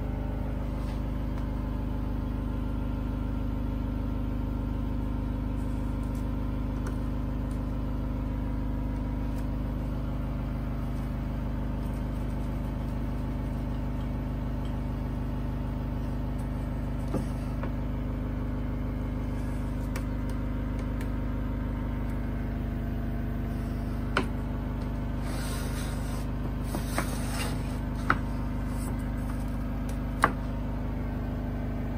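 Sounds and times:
motor hum: 0.0s - 31.9s
hiss: 25.2s - 26.2s.

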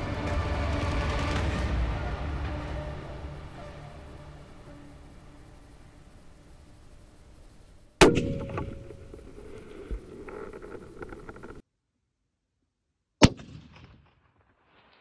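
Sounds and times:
rifle shot with rolling echo: 13.2s - 15.0s.

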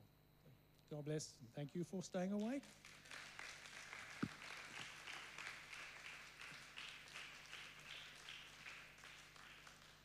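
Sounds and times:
faint applause: 2.7s - 10.0s.

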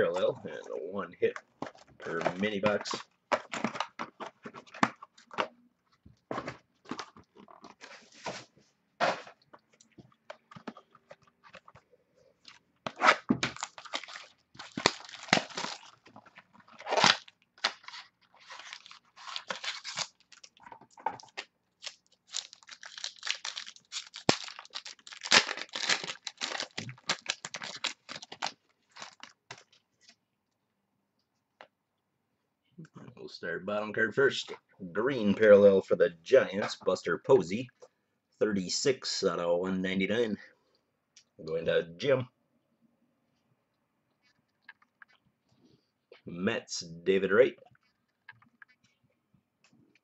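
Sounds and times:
cardboard and wrapper tearing: 12.8s - 29.6s.

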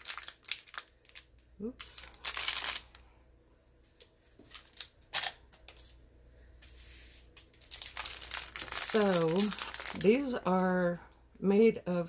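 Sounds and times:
plastic bag crinkling: 0.0s - 3.0s, 3.8s - 6.0s, 7.4s - 10.5s.

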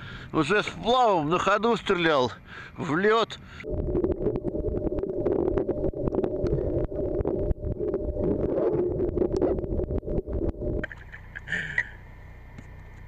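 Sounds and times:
muffled underwater water rush: 3.6s - 11.4s
small clicks and knocks underwater: 4.4s - 11.9s.

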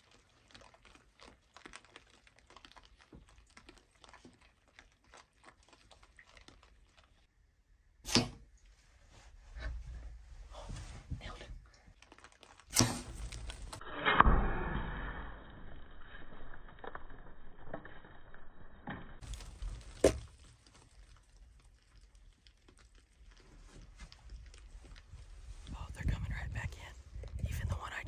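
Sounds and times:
hogs scuffling: 0.0s - 7.3s, 19.2s - 25.8s.

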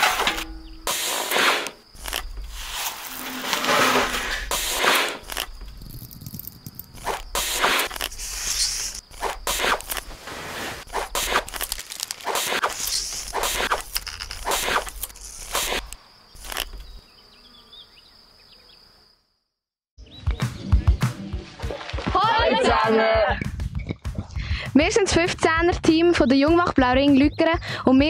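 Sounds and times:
short rustling scraping noises: 0.0s - 5.4s.

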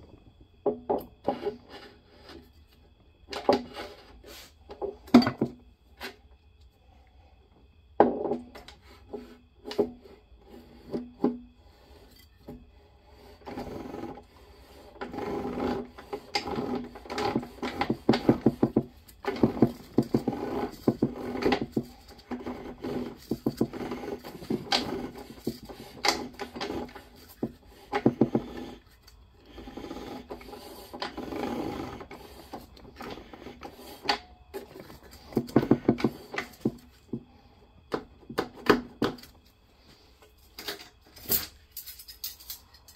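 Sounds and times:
metal parts clinking and scraping: 40.5s - 42.9s.

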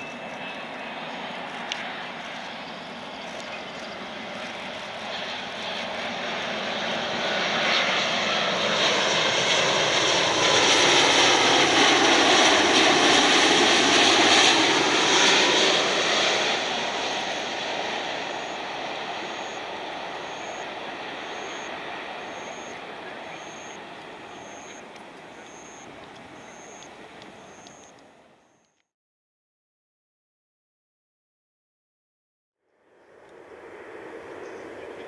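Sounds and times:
jet airliner passing overhead: 0.0s - 28.6s, 32.7s - 35.0s.

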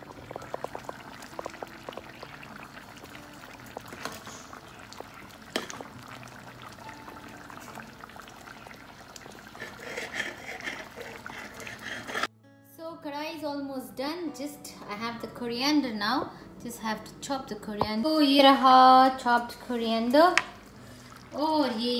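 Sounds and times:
pops: 0.0s - 6.0s
curry bubbling in a pan: 0.0s - 12.3s
spatula stirring: 9.3s - 12.3s.

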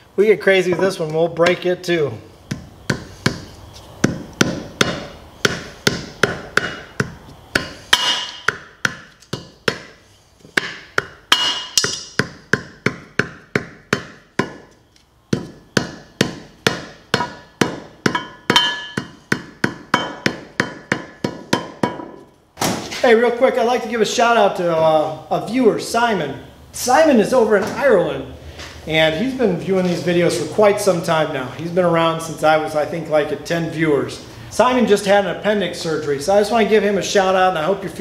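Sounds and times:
hammer tapping on metal: 10.6s - 14.7s, 15.3s - 22.2s.

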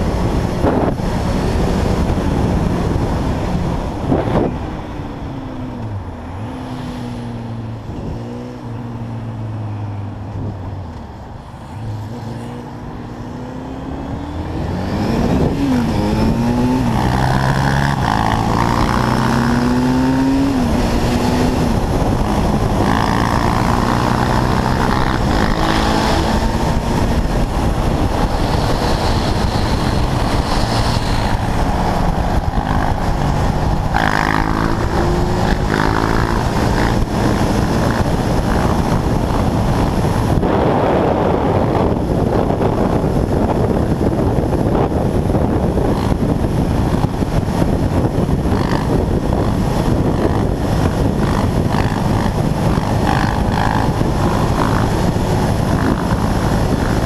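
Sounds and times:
wind noise on microphone: 0.0s - 57.0s
quad engine revving and shifting: 11.7s - 43.7s, 44.4s - 57.0s.

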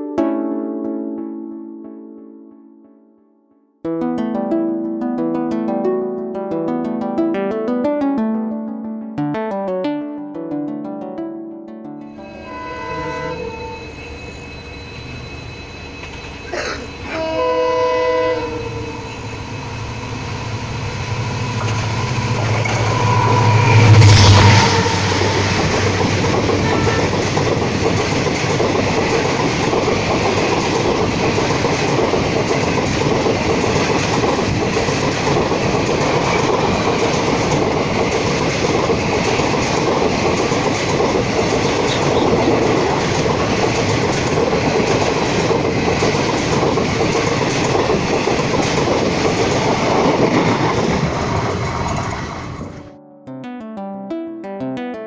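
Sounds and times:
train horn chord: 12.2s - 14.1s, 16.5s - 27.5s
diesel locomotive engine rumble: 12.3s - 52.8s.

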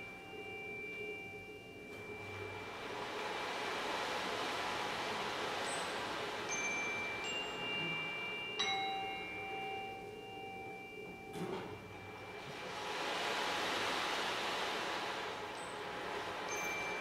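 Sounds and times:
struck metal chime tones: 0.0s - 3.3s, 5.6s - 13.1s, 15.5s - 17.0s
steady hiss: 0.0s - 17.0s.

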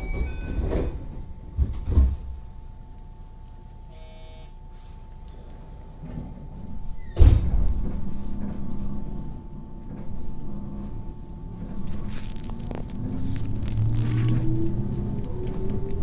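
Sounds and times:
low train rumbling: 0.0s - 2.6s, 5.9s - 16.0s
train cabin hum: 0.0s - 16.0s
sudden loud thud: 7.2s - 7.8s.

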